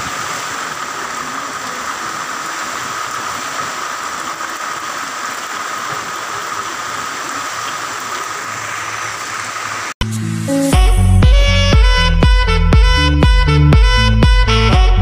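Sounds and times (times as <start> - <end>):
rain on metal roofs: 0.0 - 10.0.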